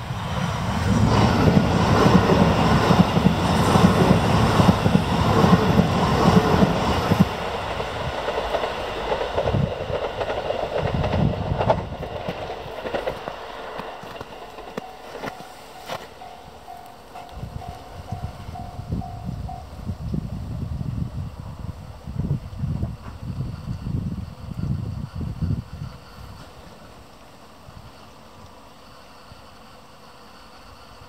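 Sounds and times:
train passing rumble: 0.0 - 31.0.

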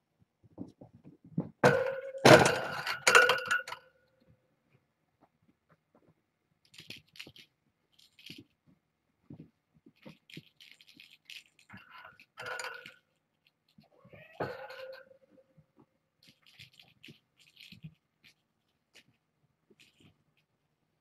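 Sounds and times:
hard object clattering: 1.4 - 3.9, 9.3 - 13.1
clinking ring: 1.8 - 4.0, 10.6 - 13.1.

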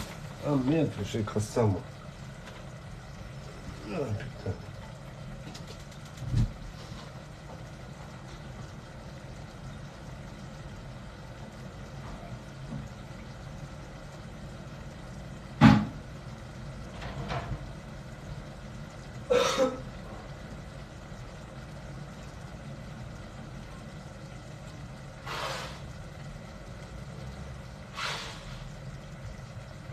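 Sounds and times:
steady low hum: 0.0 - 29.9
sharp knocks: 15.6 - 16.0.

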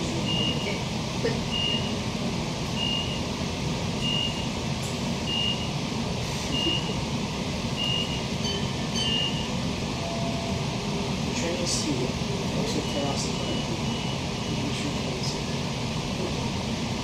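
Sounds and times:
train door beeper: 0.2 - 0.9, 1.5 - 2.0, 2.7 - 3.3, 4.0 - 4.6, 5.2 - 5.8, 6.5 - 7.0, 7.7 - 10.8, 12.6 - 14.7.

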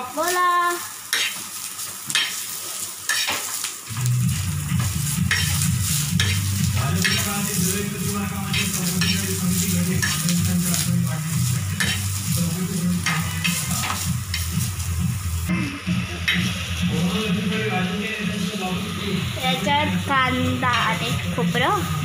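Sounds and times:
knife chopping on metal griddle: 3.1 - 3.5, 4.8 - 7.4, 8.5 - 9.4, 10.0 - 10.8, 11.8 - 12.1.

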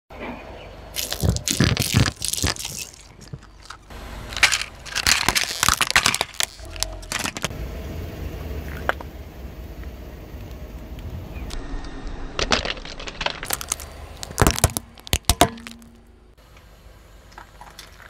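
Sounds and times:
low rumble of car tyre: 0.1 - 18.0
plastic toys cracking under tyre: 1.0 - 7.5, 12.4 - 16.1.

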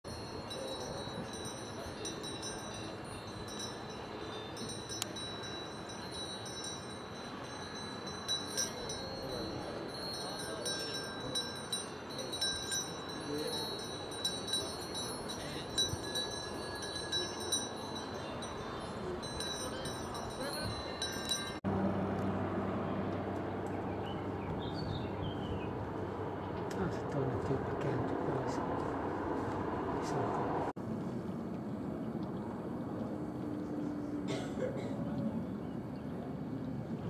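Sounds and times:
cowbells clanking: 0.0 - 21.6
steady outdoor hiss: 0.1 - 37.0.

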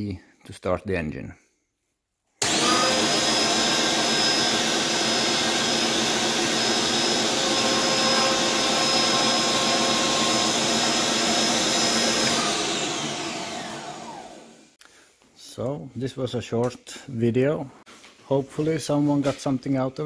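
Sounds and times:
electric motor whirring: 2.4 - 14.7.

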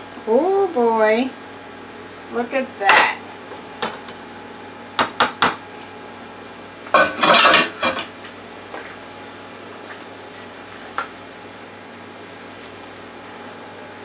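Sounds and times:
dishes clattering: 7.0 - 8.1.

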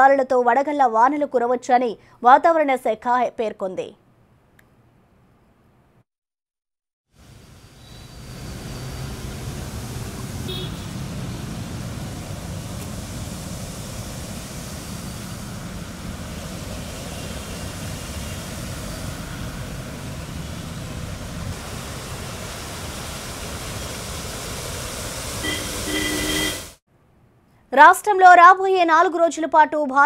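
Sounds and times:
traffic noise: 7.2 - 26.8
brief tone: 7.6 - 9.1, 25.4 - 26.8
car driving through floodwater: 19.8 - 26.5.

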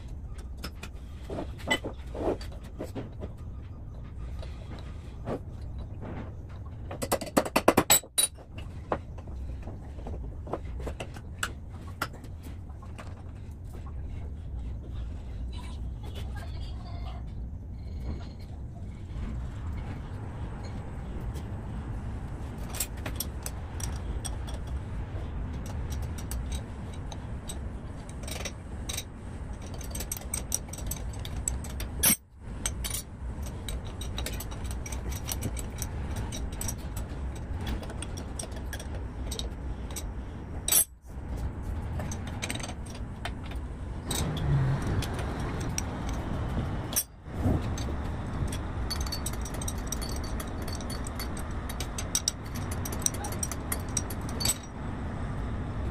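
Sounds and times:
steady low hum: 0.0 - 55.9
metal valve parts clicking and clinking: 7.0 - 10.0, 22.6 - 24.9, 25.5 - 41.0, 41.8 - 54.8.

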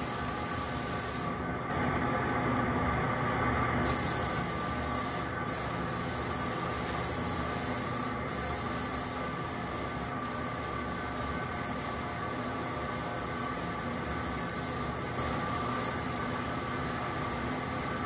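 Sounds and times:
paint spray gun hissing: 0.0 - 1.4, 3.9 - 18.0.

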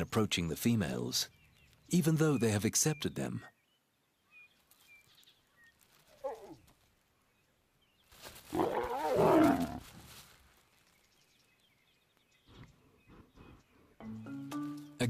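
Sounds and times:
lion growling: 8.5 - 9.8
lion snarling: 8.5 - 9.8.

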